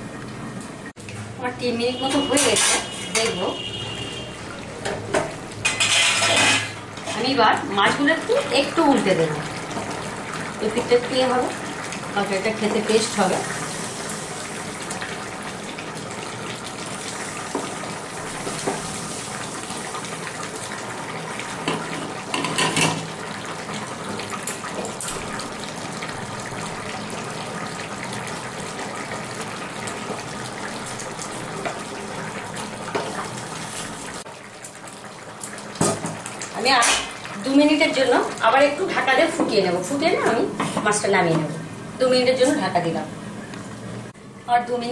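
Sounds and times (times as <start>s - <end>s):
curry boiling with bubbling hiss: 0.0s - 44.9s
wooden spatula scraping pan: 5.7s - 7.4s.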